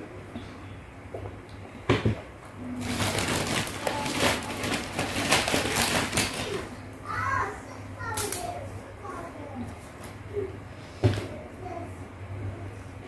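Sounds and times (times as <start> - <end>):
plastic bag crinkling: 2.8 - 6.7.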